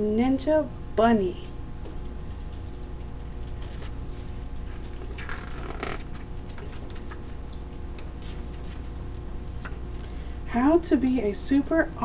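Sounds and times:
steady low hum: 0.0s - 12.0s
book pages rustling: 3.6s - 9.8s.

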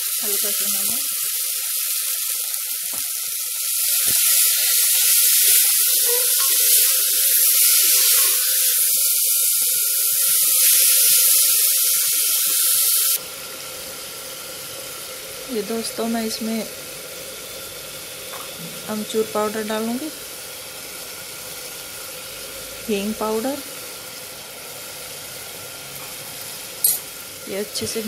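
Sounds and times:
food sizzling in hot oil: 0.0s - 28.0s.

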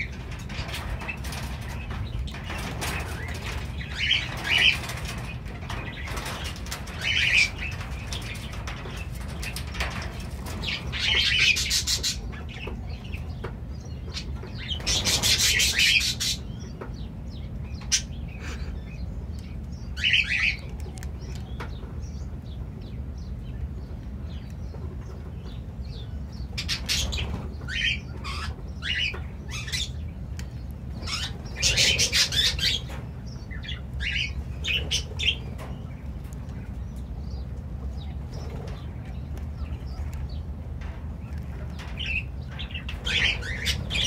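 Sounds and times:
steady low rumble: 0.0s - 44.0s
cockatiels chirping: 31.0s - 35.7s.

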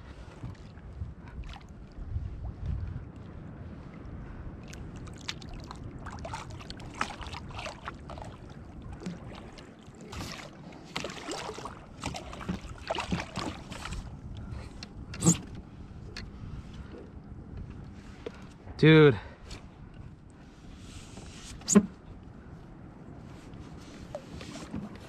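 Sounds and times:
water splashing against a kayak: 0.0s - 15.6s, 23.7s - 25.0s
low wind rumble: 0.0s - 25.0s.

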